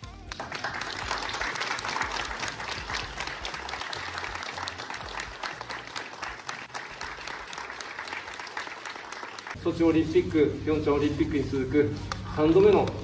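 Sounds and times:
people applauding: 0:00.0 - 0:09.6.

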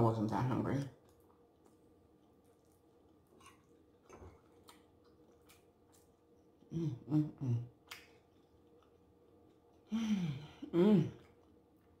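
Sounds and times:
woman chewing with mouth clicks: 0:01.0 - 0:09.9, 0:10.6 - 0:12.0
woman humming: 0:06.7 - 0:07.8, 0:09.9 - 0:11.3.

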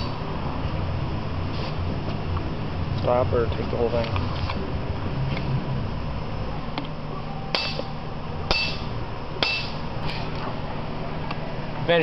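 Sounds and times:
hammer blows on metal tool: 0:07.5 - 0:07.9, 0:08.5 - 0:09.8.

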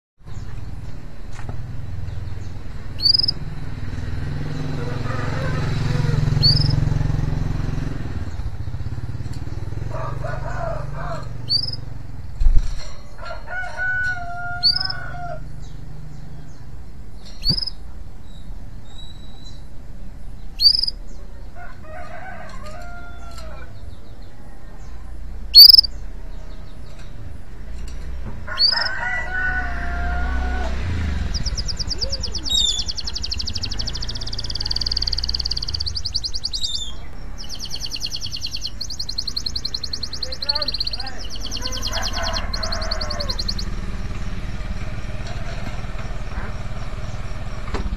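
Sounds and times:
street traffic rumble: 0:00.2 - 0:47.9
canary chirping and trilling: 0:01.7 - 0:16.6, 0:17.2 - 0:19.7, 0:20.3 - 0:21.2, 0:25.5 - 0:27.2, 0:27.9 - 0:47.3
rooster crowing: 0:04.6 - 0:06.8, 0:09.8 - 0:11.5, 0:13.2 - 0:15.6, 0:21.5 - 0:23.8, 0:28.4 - 0:32.0, 0:41.3 - 0:44.0.

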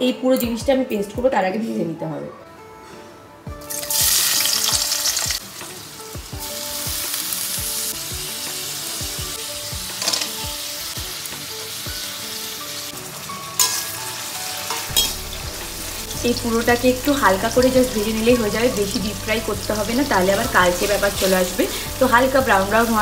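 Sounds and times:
vegetables sizzling in hot oil: 0:03.6 - 0:23.0.

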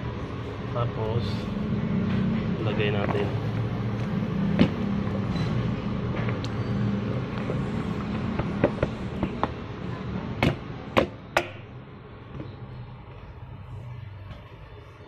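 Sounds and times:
steady low hum: 0:00.0 - 0:15.0
sharp knocks against metal pot: 0:10.4 - 0:11.7.

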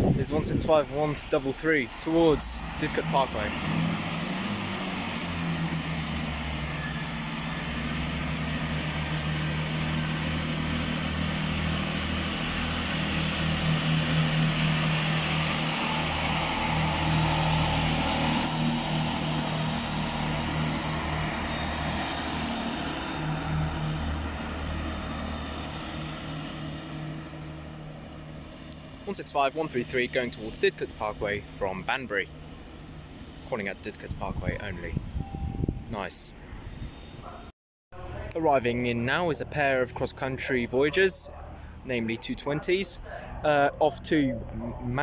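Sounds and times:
wheel and rail noise: 0:00.0 - 0:34.2
diesel train engines: 0:00.0 - 0:45.0.

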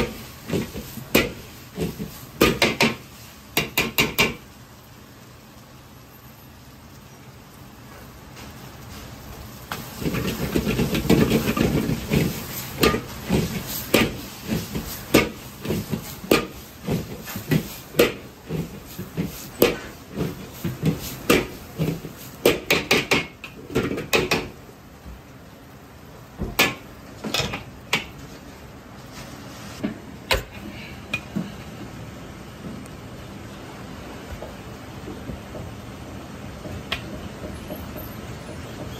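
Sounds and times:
food sizzling: 0:00.0 - 0:30.5.

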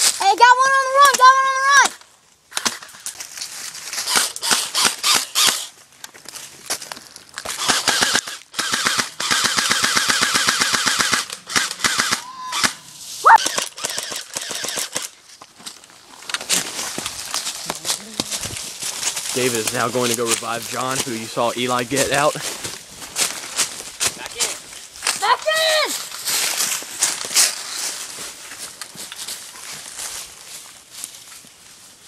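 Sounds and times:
person shouting: 0:00.2 - 0:01.9, 0:12.2 - 0:13.5, 0:25.2 - 0:26.0
airsoft guns firing bursts: 0:04.1 - 0:05.7, 0:07.6 - 0:12.8, 0:13.4 - 0:15.1.

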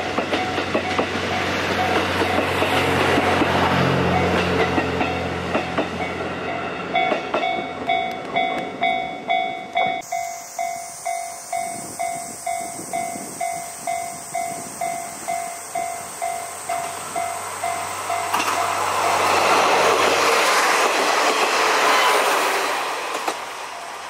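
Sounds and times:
level-crossing warning bell: 0:00.0 - 0:02.6, 0:04.0 - 0:19.4
approaching railcar: 0:00.0 - 0:24.0
steady high hiss: 0:10.0 - 0:19.3.

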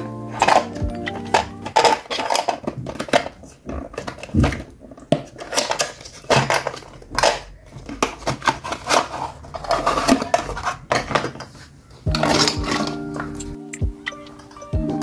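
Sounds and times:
chime-like music: 0:00.0 - 0:01.7, 0:12.1 - 0:15.0
plastic knocks and clacks: 0:00.4 - 0:14.6.

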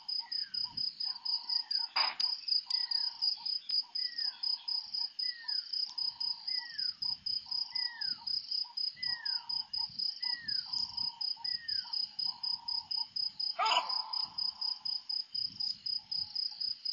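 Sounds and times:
pulsing cricket chirps: 0:00.1 - 0:16.9
bushbuck alarm bark: 0:13.6 - 0:14.6.

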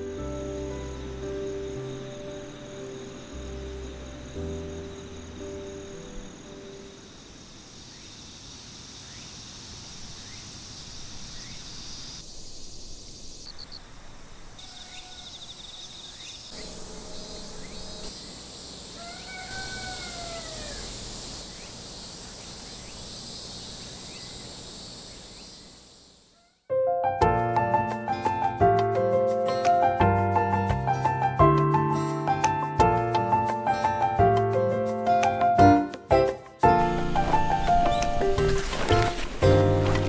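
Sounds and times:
insects trilling: 0:00.0 - 0:26.6, 0:36.6 - 0:40.0.

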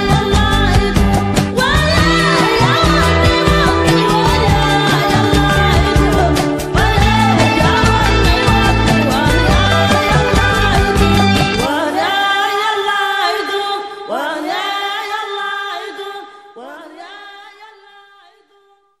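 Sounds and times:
band with low drums: 0:00.0 - 0:11.7.

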